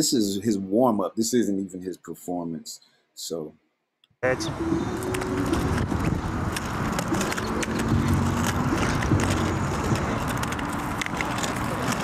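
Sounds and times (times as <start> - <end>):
skate wheels rolling on concrete: 4.9 - 12.0.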